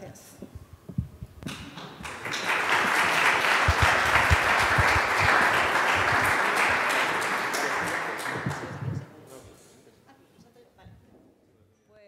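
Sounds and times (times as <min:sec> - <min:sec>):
audience applauding: 0:01.5 - 0:09.1.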